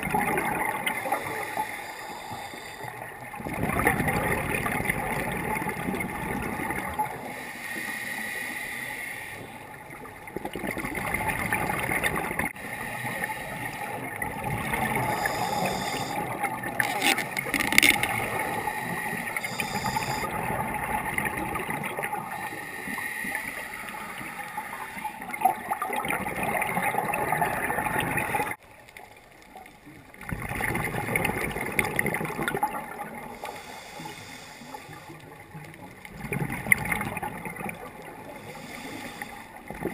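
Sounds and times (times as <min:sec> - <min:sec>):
underwater breath bubbling: 0:00.1 - 0:28.6, 0:30.3 - 0:35.5, 0:36.1 - 0:39.9.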